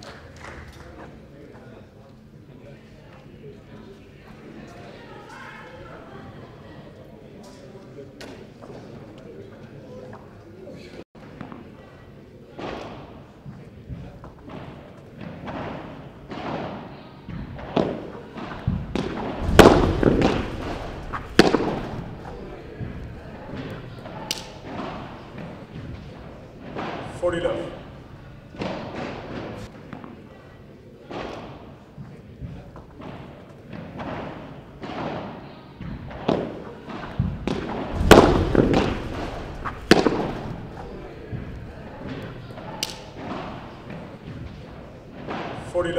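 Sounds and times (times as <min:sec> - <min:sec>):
ball rebounding off walls: 0:14.5 - 0:27.9, 0:33.0 - 0:45.6
padel ball hit by rackets: 0:17.6 - 0:25.5, 0:36.0 - 0:44.0.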